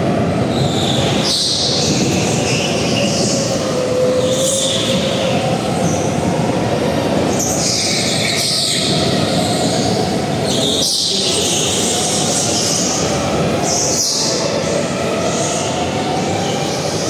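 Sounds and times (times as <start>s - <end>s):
high squeal: 0.4s - 6.2s, 7.3s - 17.0s.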